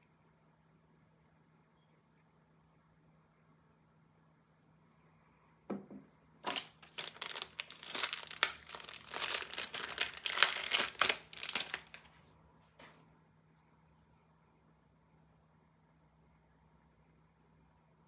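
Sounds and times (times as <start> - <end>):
light knock: 5.7 - 6.1
plastic bag crinkling: 6.4 - 12.2.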